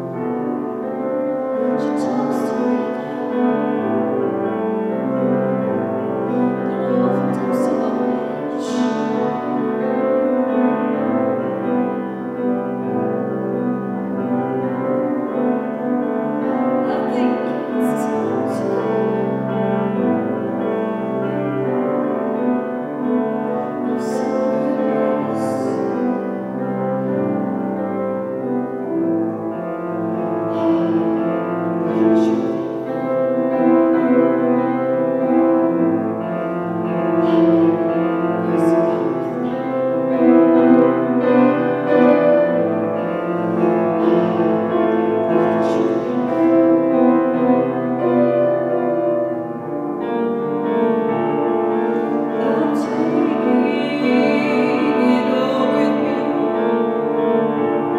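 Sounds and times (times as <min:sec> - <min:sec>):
piano accompaniment: 0:00.0 - 0:57.9
woman singing: 0:01.6 - 0:04.2, 0:06.3 - 0:09.9, 0:16.8 - 0:19.5, 0:23.4 - 0:26.3, 0:31.8 - 0:32.7, 0:37.2 - 0:39.8, 0:44.0 - 0:46.6, 0:51.9 - 0:57.3.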